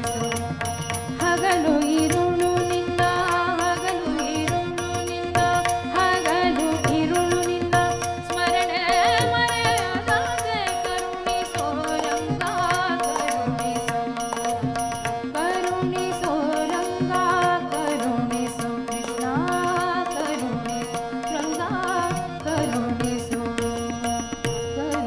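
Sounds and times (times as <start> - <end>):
harmonium: 0.0 - 25.0
tabla beat: 0.0 - 25.0
tanpura drone: 0.0 - 25.0
woman singing: 0.0 - 25.0.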